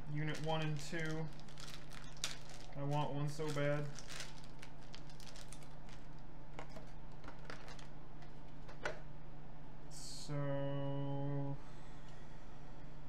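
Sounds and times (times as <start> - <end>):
steady low hum: 0.0 - 13.0
plastic packaging crinkling: 0.2 - 7.9.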